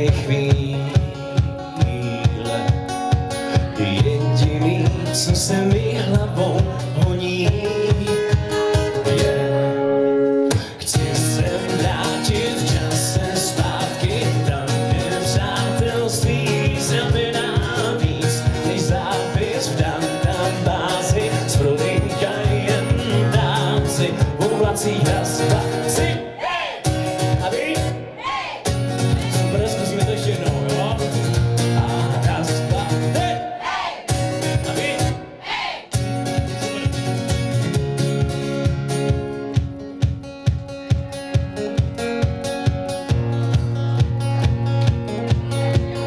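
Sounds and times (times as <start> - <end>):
man singing: 0.0 - 9.8, 10.5 - 28.4, 29.0 - 35.4
acoustic guitar strumming: 0.0 - 46.0.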